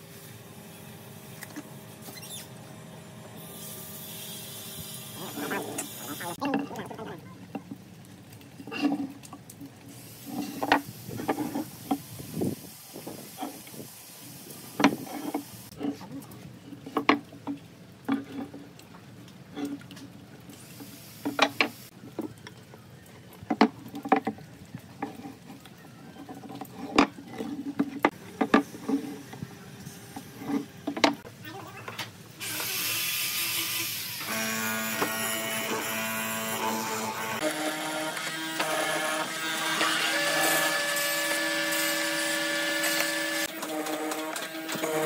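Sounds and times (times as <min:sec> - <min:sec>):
steel pins scratching wood: 0:10.1 - 0:12.1, 0:14.7 - 0:17.2, 0:23.5 - 0:31.3.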